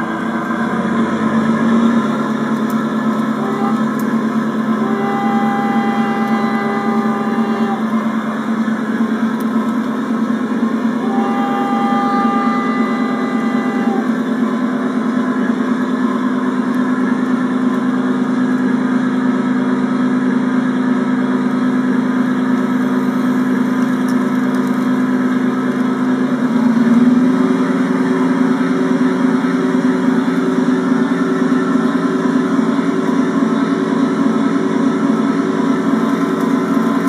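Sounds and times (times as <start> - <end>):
horn tone: 0.0 - 9.4, 10.9 - 15.0
simulated locomotive engine hum: 0.0 - 37.0.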